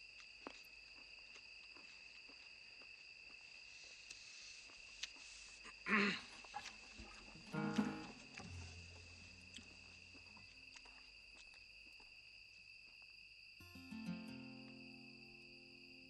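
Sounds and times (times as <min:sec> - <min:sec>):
crickets chirring: 0:00.0 - 0:16.0
soft sustained music notes: 0:07.4 - 0:10.2, 0:13.6 - 0:16.0.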